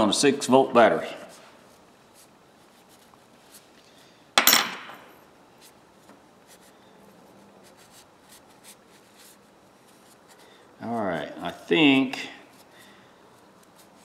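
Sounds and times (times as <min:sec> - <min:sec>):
towel rubbing small parts: 0:07.5 - 0:14.0.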